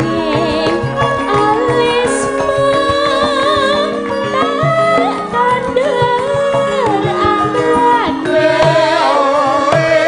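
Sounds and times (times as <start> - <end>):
metallophone tones: 0.0 - 9.0
woman singing: 0.0 - 10.0.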